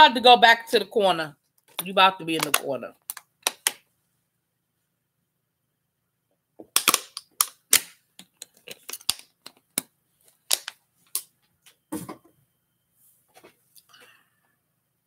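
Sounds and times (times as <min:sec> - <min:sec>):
sharp clicks and taps: 0:01.6 - 0:03.8.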